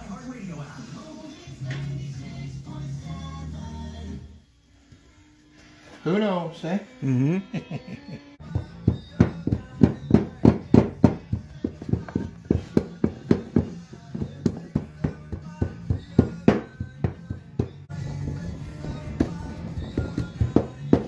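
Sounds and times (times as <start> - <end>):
faint radio or tv: 0.0 - 3.9.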